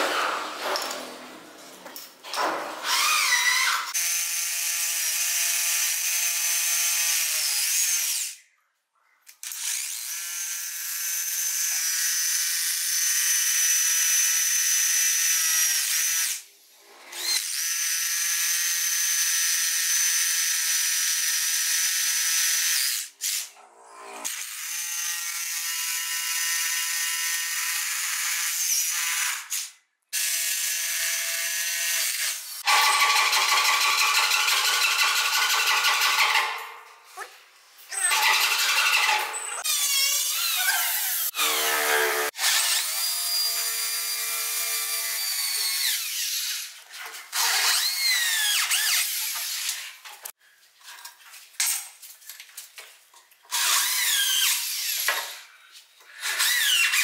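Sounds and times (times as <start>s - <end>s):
hammer drill boring into concrete: 24.3s - 36.6s, 37.9s - 50.0s, 53.5s - 55.5s, 56.1s - 57.0s.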